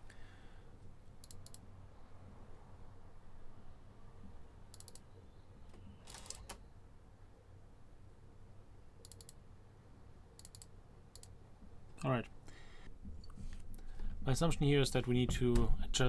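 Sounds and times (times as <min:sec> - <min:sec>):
mouse clicks: 0:04.7 - 0:05.1, 0:09.0 - 0:09.4, 0:10.4 - 0:11.4.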